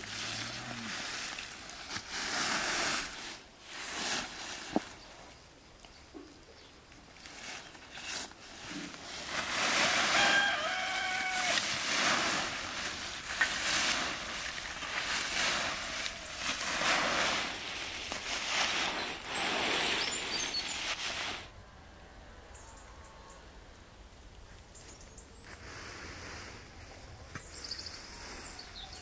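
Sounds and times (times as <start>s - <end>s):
dry leaves rustling and crunching: 0.0s - 5.4s, 6.9s - 21.5s
rooster crowing: 9.8s - 11.9s.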